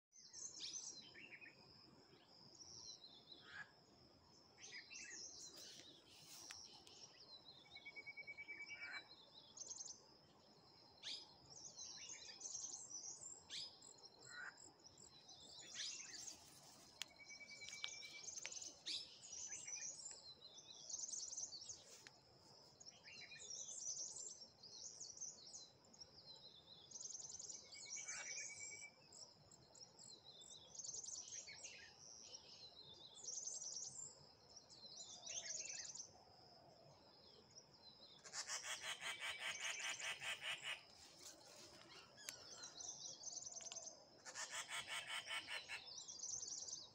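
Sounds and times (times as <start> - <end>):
birds chirping: 38.1 - 46.9.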